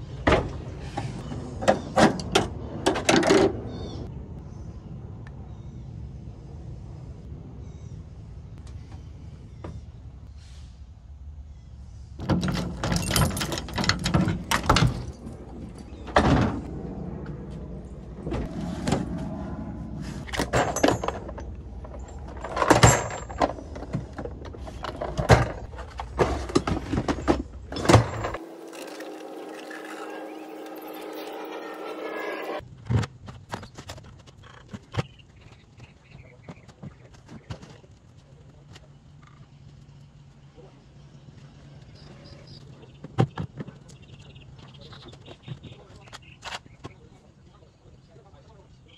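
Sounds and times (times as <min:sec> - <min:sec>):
tools clunking and rattling: 0:12.2 - 0:16.7, 0:20.2 - 0:29.0
held tone: 0:28.1 - 0:32.6.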